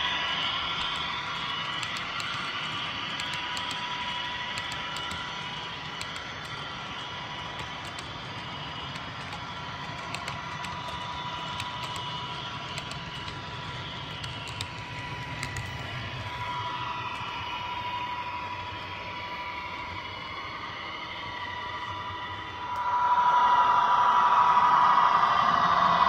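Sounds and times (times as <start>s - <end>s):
light clicks of rolling cars: 0.4s - 17.6s.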